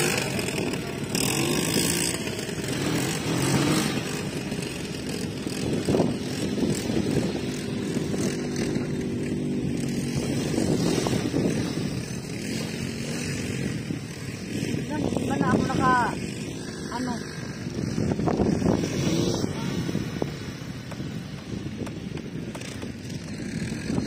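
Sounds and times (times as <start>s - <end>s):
quad bike engines revving: 0.0s - 24.0s.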